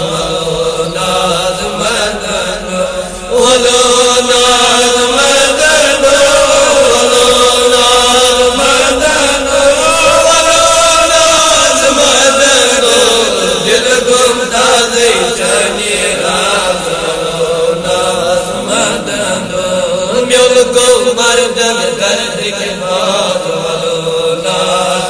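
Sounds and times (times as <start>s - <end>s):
men chanting together: 0.0s - 25.0s.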